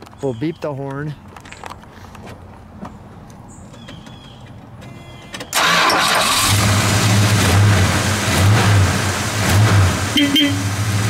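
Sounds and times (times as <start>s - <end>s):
car engine starting and idling: 5.4s - 11.0s.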